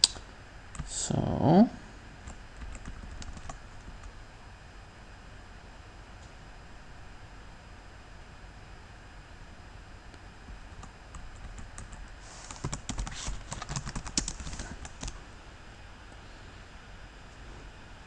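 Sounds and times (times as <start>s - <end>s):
computer keyboard typing: 2.2s - 4.1s, 10.4s - 15.2s.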